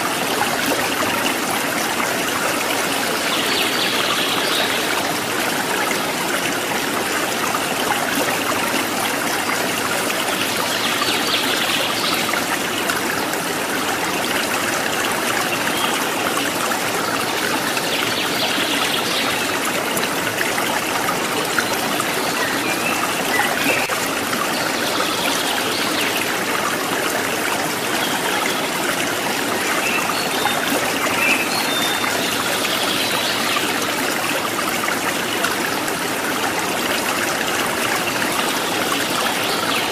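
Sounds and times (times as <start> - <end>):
running water: 0.0 - 39.9.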